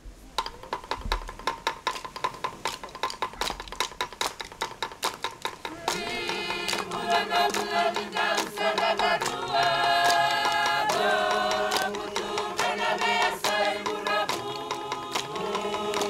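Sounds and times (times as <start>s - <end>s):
chant-like singing: 5.6s - 16.0s.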